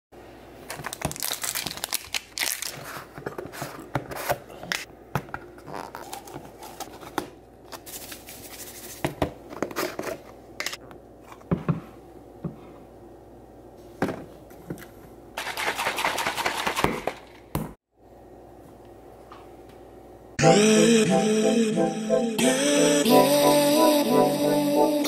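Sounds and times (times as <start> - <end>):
seal tearing and crinkling: 0.7 - 3.1.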